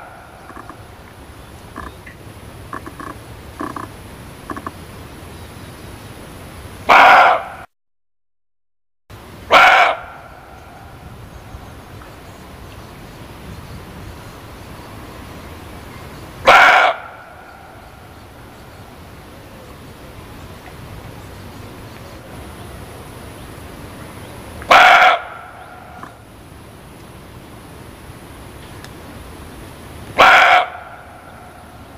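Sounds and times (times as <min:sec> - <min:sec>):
deer barking: 0:06.9 - 0:07.6, 0:09.5 - 0:10.4, 0:16.4 - 0:17.3, 0:24.7 - 0:26.2, 0:30.2 - 0:31.3
faint background hiss: 0:09.2 - 0:31.9.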